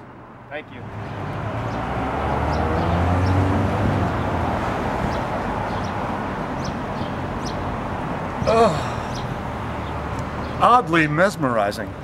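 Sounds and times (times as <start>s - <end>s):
vehicle driving past: 0.8s - 7.9s.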